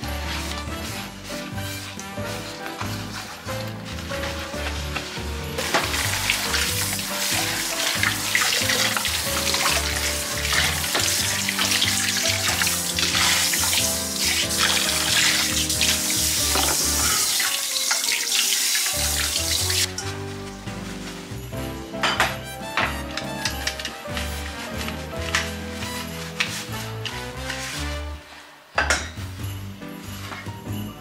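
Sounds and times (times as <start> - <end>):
background music: 0.0 - 31.0
water splashing over frying pan: 5.6 - 19.9
tap running into sink: 14.7 - 19.9.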